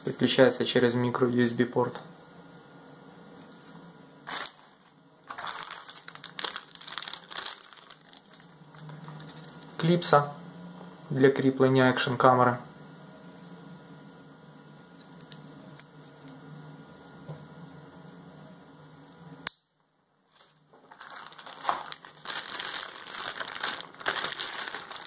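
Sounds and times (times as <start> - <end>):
low steady hum: 0.0 - 25.0
packaging crinkling: 4.2 - 9.7, 20.3 - 25.0.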